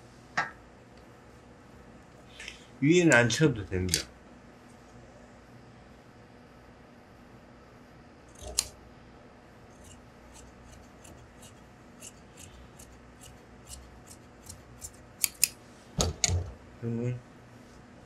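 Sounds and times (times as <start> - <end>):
shears snipping fabric: 9.7 - 15.6.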